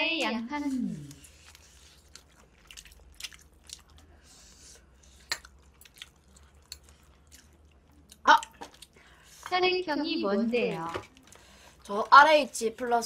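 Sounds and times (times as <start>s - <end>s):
person chewing fried chicken: 0.9s - 9.5s.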